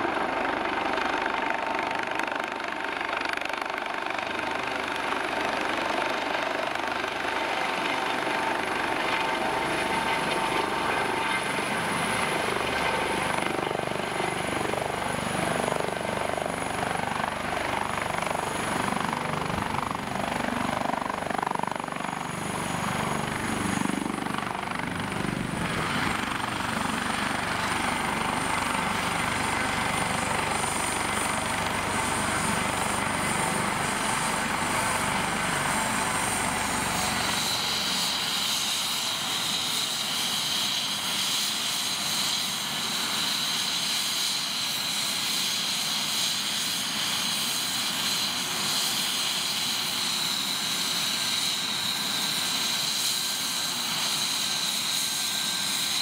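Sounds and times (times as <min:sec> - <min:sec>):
helicopter rotor rumble: 0:00.0 - 0:56.0
high turbine whine: 0:00.0 - 0:56.0.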